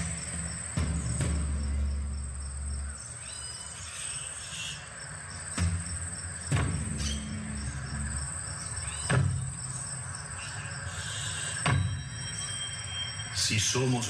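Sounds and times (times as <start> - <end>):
deep thumps: 0.0 - 2.9, 5.5 - 10.0
crickets chirping: 0.0 - 14.0.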